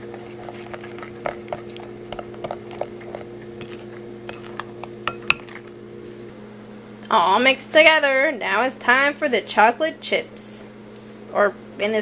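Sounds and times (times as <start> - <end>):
spoon stirring batter: 0.0 - 5.8
spoon tapping glass bowl: 5.0 - 5.5.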